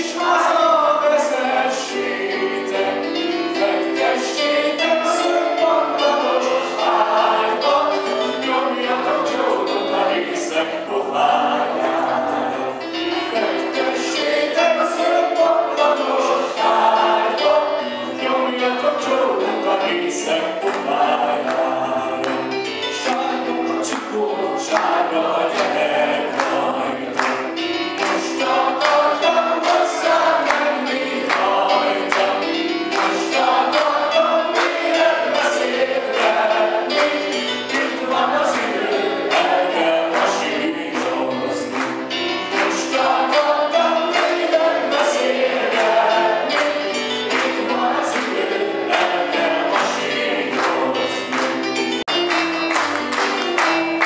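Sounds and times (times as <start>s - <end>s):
backing music with steady beat: 0.0s - 54.0s
man singing into microphone: 3.6s - 27.2s.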